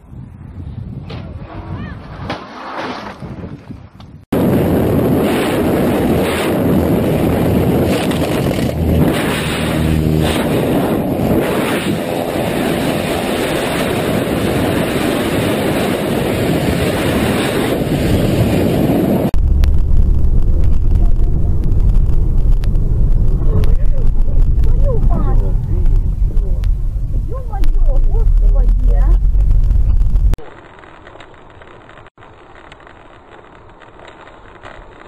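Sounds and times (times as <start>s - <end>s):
wind buffeting microphone: 0.0s - 2.4s, 3.0s - 30.4s
car driving rumble from inside: 19.4s - 30.4s.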